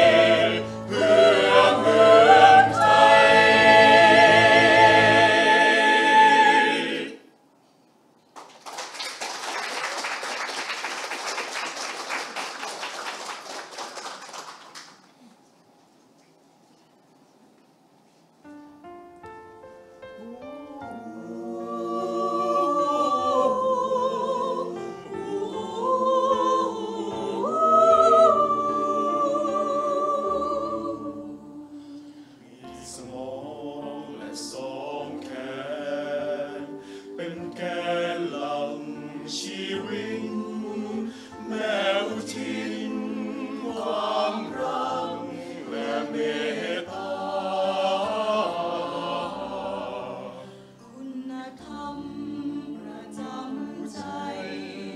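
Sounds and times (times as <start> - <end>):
mixed choir singing in harmony: 0.0 - 7.4, 20.2 - 54.9.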